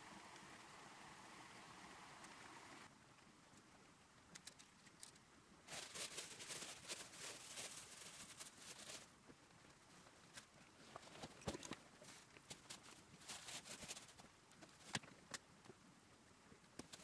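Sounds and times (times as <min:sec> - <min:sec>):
plastic bag crinkling: 0:04.5 - 0:09.1.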